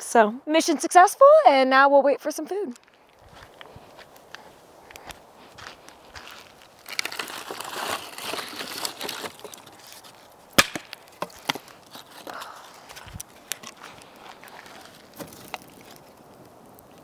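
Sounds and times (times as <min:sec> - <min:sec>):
dry wood crackling and snapping: 0:02.7 - 0:17.0.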